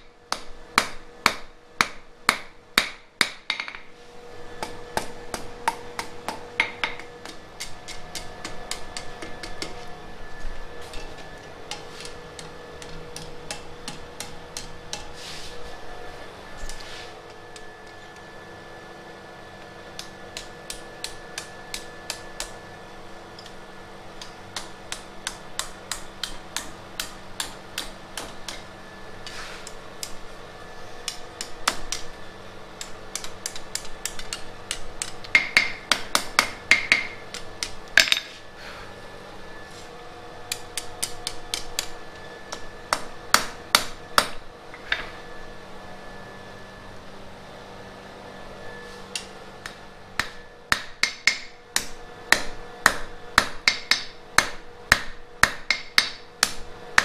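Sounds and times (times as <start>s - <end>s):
steady hum: 0.0s - 57.0s
hammer striking iron on anvil: 0.3s - 3.9s, 4.6s - 9.9s, 11.7s - 15.1s, 20.0s - 22.6s, 24.2s - 28.6s, 32.8s - 38.3s, 42.5s - 44.4s, 49.6s - 57.0s.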